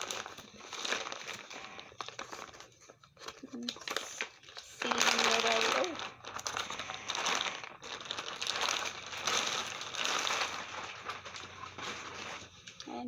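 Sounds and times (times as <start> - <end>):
plastic packaging crinkling: 0.0 - 13.0.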